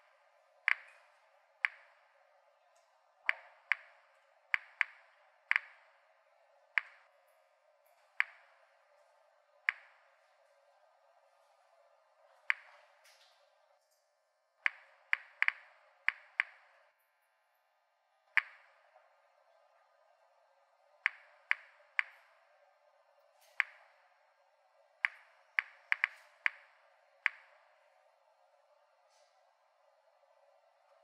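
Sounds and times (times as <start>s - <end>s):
geiger counter clicking: 0.0s - 2.2s, 3.2s - 6.0s, 6.7s - 7.1s, 8.2s - 8.8s, 9.6s - 10.2s, 12.5s - 12.8s, 14.7s - 16.9s, 18.3s - 18.9s, 21.0s - 22.3s, 23.5s - 24.0s, 25.0s - 27.9s.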